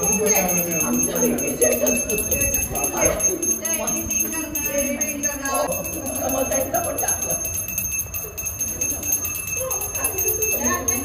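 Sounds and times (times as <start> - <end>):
handbell ringing: 0.0 - 11.0
voices talking: 0.0 - 11.0.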